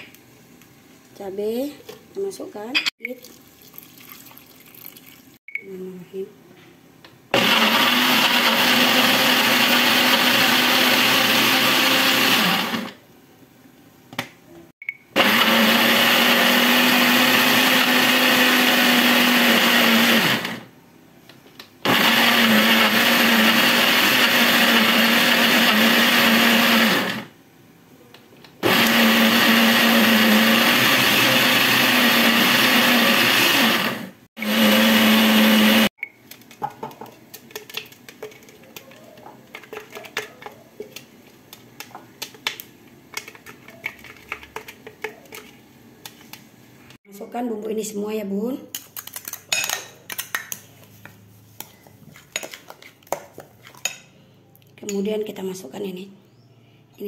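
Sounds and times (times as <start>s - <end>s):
electric blender grinding: 7.3s - 13.0s, 15.2s - 20.7s, 21.8s - 27.3s, 28.6s - 35.9s.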